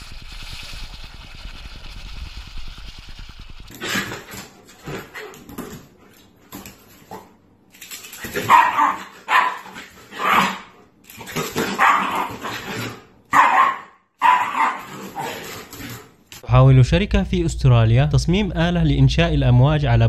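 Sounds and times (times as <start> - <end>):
dog barking: 8.4 - 10.7, 11.7 - 12.5, 13.3 - 15.4.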